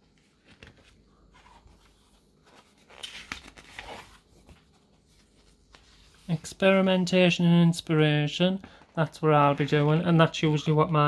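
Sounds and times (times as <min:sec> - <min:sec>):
book pages turning: 0:00.0 - 0:06.9.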